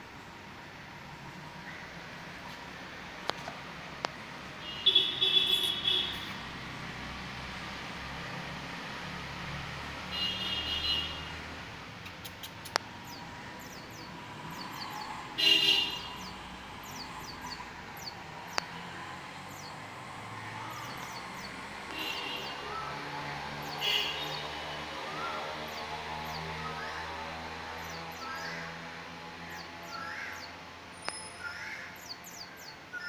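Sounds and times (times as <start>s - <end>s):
sharp clicks: 12.0s - 12.9s
small birds chirping: 12.0s - 28.7s, 29.4s - 33.0s.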